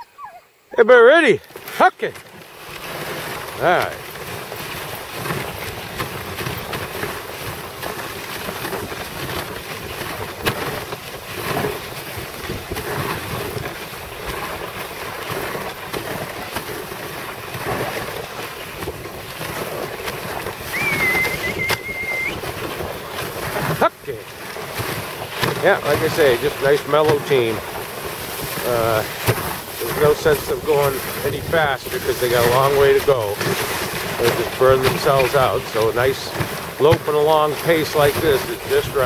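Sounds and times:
sled runners scraping on snow: 0:00.9 - 0:39.0
wind on microphone: 0:05.2 - 0:37.1
thin high squeal: 0:20.7 - 0:22.4.

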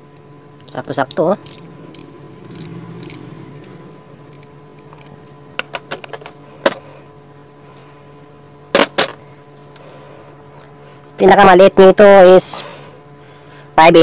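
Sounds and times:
steady low hum: 0:00.0 - 0:14.0
ratchet clicking: 0:01.1 - 0:03.7.

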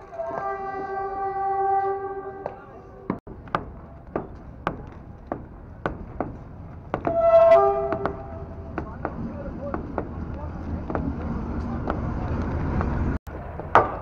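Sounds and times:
vehicle horn: 0:00.0 - 0:02.8, 0:07.1 - 0:08.7
sharp knocks: 0:02.4 - 0:10.2.

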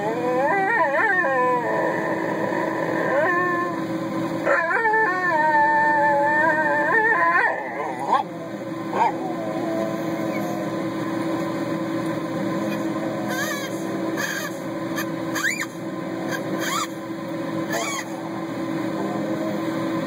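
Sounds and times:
dog whining: 0:00.0 - 0:03.8, 0:04.4 - 0:10.7, 0:12.6 - 0:17.0, 0:17.7 - 0:18.3
steady low hum: 0:00.0 - 0:20.0.

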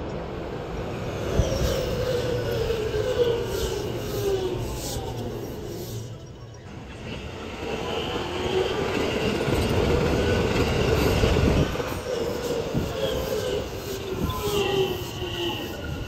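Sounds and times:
electric train slowing: 0:00.0 - 0:16.0
wheels and brakes squealing: 0:00.8 - 0:16.0.

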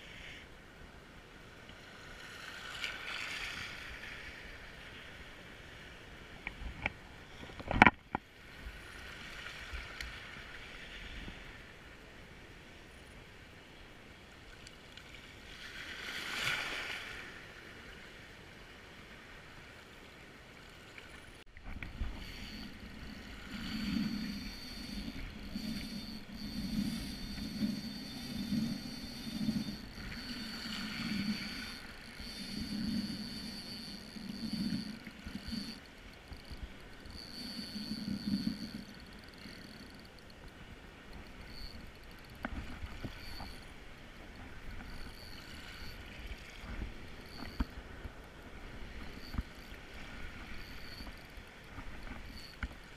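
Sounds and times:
wind and water hiss: 0:00.0 - 0:52.9
fishing reel whining: 0:21.1 - 0:52.9.

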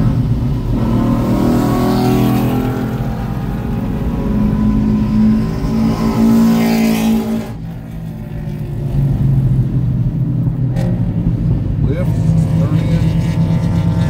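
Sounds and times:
car engine revving inside cabin: 0:00.0 - 0:07.7.

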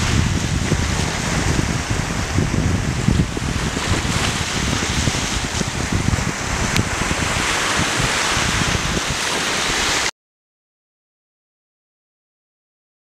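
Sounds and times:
surf washing over rocks: 0:00.0 - 0:10.1
wind rumbling on microphone: 0:00.0 - 0:10.1.

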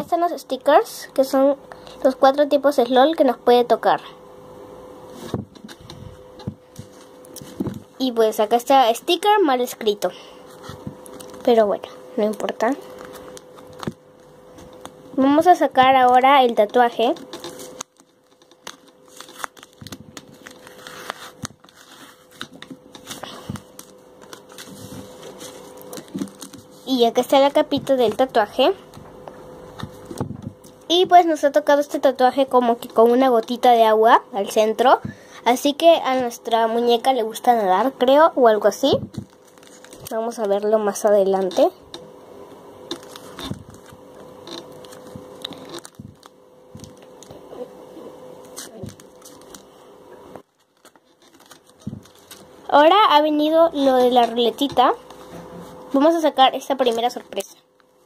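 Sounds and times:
faint steady hum: 0:00.0 - 0:58.0
paper crinkling and rustling: 0:10.5 - 0:11.6, 0:12.2 - 0:29.0, 0:38.9 - 0:41.6, 0:42.9 - 0:47.4, 0:48.4 - 0:49.8, 0:50.4 - 0:55.8.

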